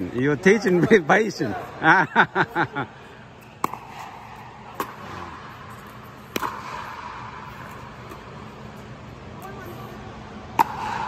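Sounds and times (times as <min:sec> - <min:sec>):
background hum: 0:00.0 - 0:11.0
paddles striking ball: 0:05.8 - 0:08.2.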